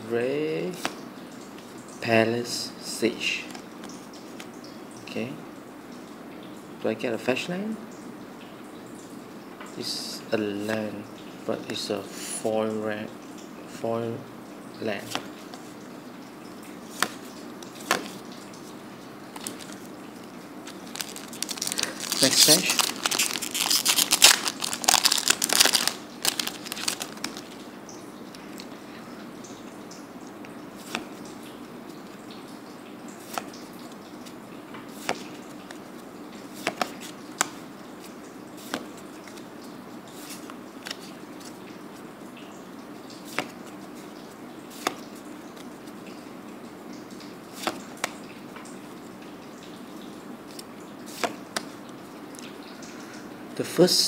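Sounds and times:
low steady hiss: 0.0s - 54.0s
cards tapping down: 20.7s - 27.4s.

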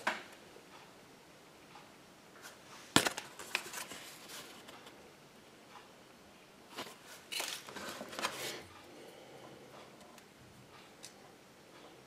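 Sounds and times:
faint handling noises: 2.4s - 5.0s, 6.7s - 12.0s.

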